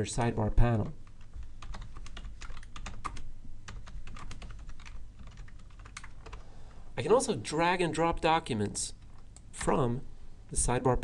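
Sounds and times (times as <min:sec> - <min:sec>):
computer keyboard typing: 0:00.2 - 0:06.4.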